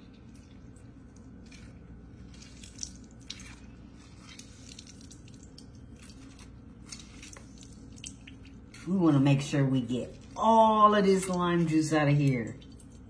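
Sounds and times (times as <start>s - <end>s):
limes squished by hand: 0.0s - 8.9s
juice dripping into bowl: 0.0s - 13.0s
steady low hum: 0.0s - 13.0s.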